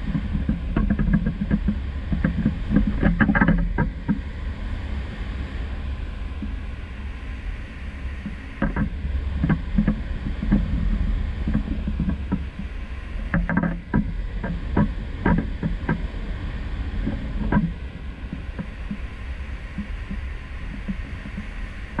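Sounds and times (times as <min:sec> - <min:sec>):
low rumble of wind: 0:00.0 - 0:22.0
knocks and taps on camera: 0:00.1 - 0:04.2, 0:08.2 - 0:10.8, 0:11.5 - 0:12.7, 0:13.3 - 0:16.0, 0:17.0 - 0:17.7, 0:18.3 - 0:19.1, 0:19.7 - 0:22.0.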